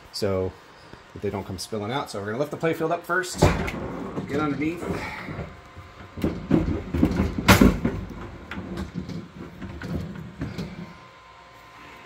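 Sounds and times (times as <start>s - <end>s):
pinball playfield scraping in cabinet: 6.2s - 11.0s.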